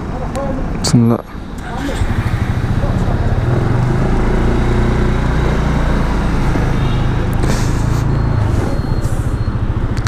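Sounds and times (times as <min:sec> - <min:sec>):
scooter engine running: 0:01.4 - 0:08.1.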